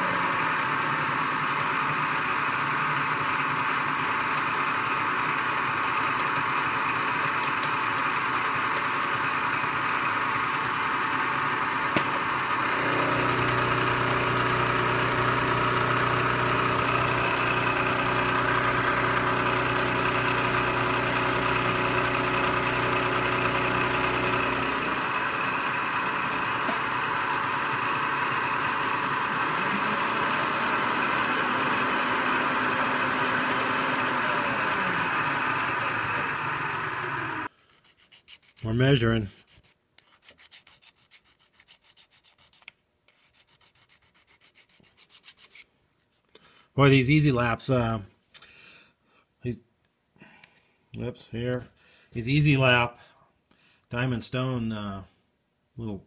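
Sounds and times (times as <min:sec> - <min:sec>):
end mill cutting steel hum: 0:00.0 - 0:37.5
milling machine running: 0:00.0 - 0:37.5.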